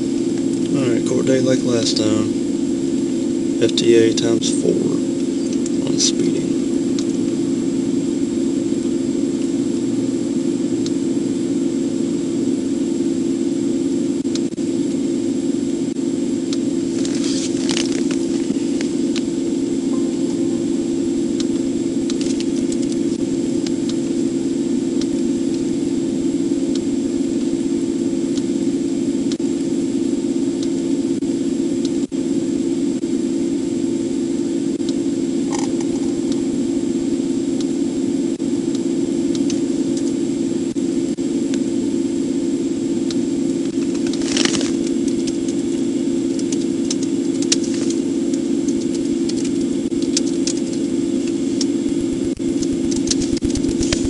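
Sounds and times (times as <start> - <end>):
faint high whine: 0.0 - 54.0
idling car engine hum: 16.5 - 26.7.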